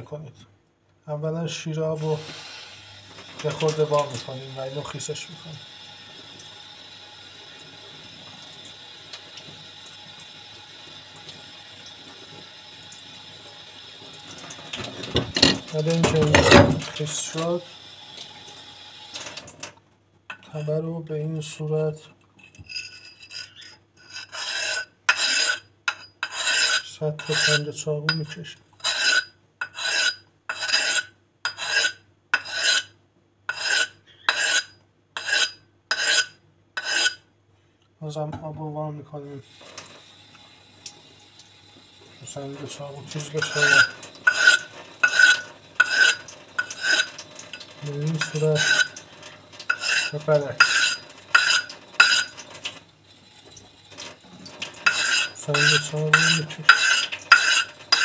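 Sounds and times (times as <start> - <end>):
tap water running: 2.0 - 19.8, 39.4 - 58.0
water splashing into steel sink: 7.5 - 19.7, 39.5 - 58.0
axe blade scraping on whetstone: 15.0 - 16.8, 22.4 - 32.9, 33.5 - 37.2, 43.2 - 49.0, 49.7 - 52.4, 54.8 - 58.0.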